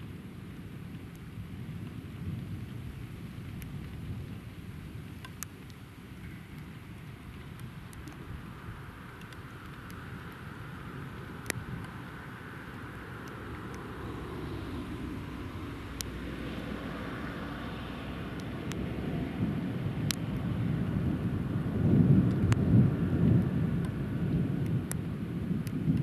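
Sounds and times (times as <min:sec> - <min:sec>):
faint sharp clicks: 0:05.2 - 0:06.7, 0:07.3 - 0:08.3, 0:09.2 - 0:10.4, 0:11.4 - 0:12.0, 0:12.7 - 0:13.9, 0:16.0 - 0:16.2, 0:18.3 - 0:18.9, 0:20.0 - 0:20.2, 0:22.2 - 0:22.6, 0:24.6 - 0:25.0, 0:25.6 - 0:26.0
thunder rumbling: 0:12.9 - 0:26.0.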